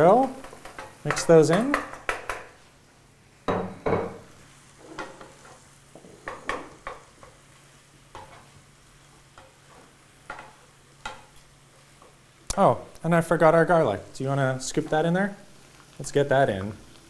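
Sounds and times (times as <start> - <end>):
soft sizzle: 0.0 - 17.0
wooden spoon scraping a pan: 4.8 - 7.3.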